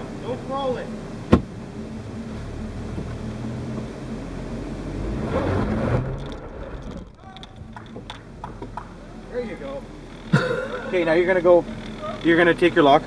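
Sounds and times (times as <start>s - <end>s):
car engine pulling under throttle: 0.0s - 13.0s.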